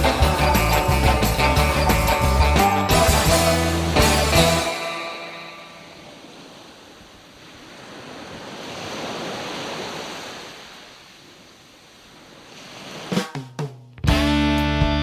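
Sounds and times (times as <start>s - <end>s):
rock music: 0.0s - 5.8s, 14.0s - 15.0s.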